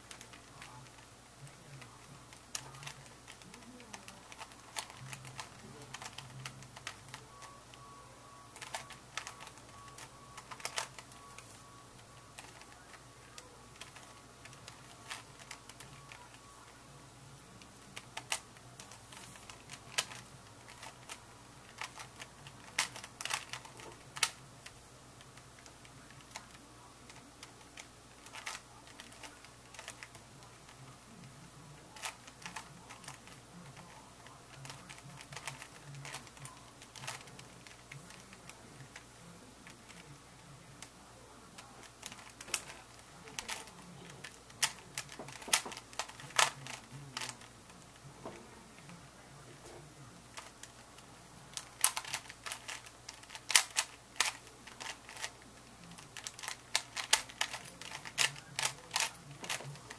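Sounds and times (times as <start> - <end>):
puzzle cube clicking as turned: 2.5 - 7.8, 8.5 - 11.1, 13.7 - 16.4, 17.9 - 24.4, 25.3 - 30.7, 34.6 - 39.0, 41.6 - 47.5, 51.5 - 55.4, 56.0 - 59.9.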